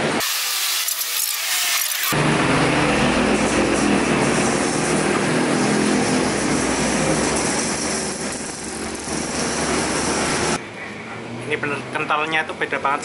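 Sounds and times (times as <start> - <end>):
road traffic: 1.0 - 13.0
heavy vehicle engine droning: 2.2 - 12.0.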